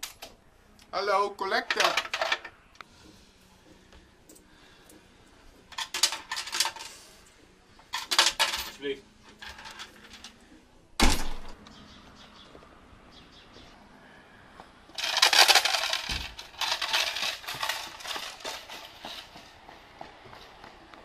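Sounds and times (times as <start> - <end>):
coins rattling in a tin: 5.7 - 7.0, 7.9 - 10.3, 15.0 - 19.2
front door slamming: 11.0 - 11.6.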